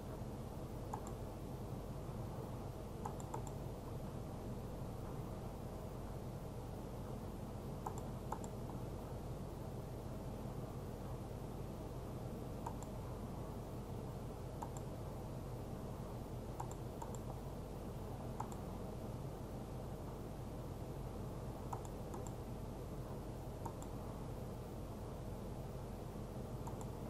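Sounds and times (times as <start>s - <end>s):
steady low hum: 0.0s - 27.0s
computer mouse clicks: 0.9s - 1.2s, 3.0s - 3.6s, 7.8s - 8.8s, 12.6s - 13.0s, 14.6s - 14.9s, 16.6s - 17.4s, 18.4s - 18.7s, 21.7s - 22.4s, 23.6s - 24.0s, 26.6s - 27.0s.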